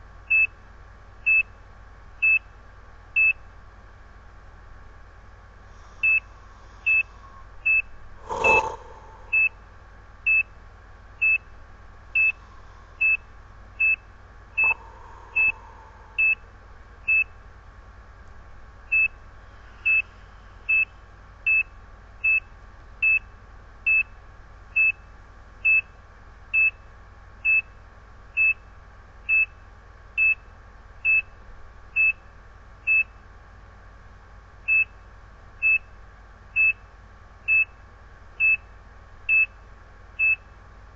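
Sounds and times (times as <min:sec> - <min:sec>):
heart monitor beeps: 0:06.0 - 0:06.3, 0:06.9 - 0:09.6, 0:12.2 - 0:12.4, 0:13.0 - 0:13.2, 0:13.8 - 0:14.0, 0:14.6 - 0:16.4, 0:17.1 - 0:17.3, 0:18.9 - 0:19.2, 0:19.8 - 0:20.0, 0:20.7 - 0:20.9, 0:32.9 - 0:33.1, 0:35.6 - 0:35.8, 0:37.5 - 0:37.7, 0:39.3 - 0:39.5, 0:40.2 - 0:40.4.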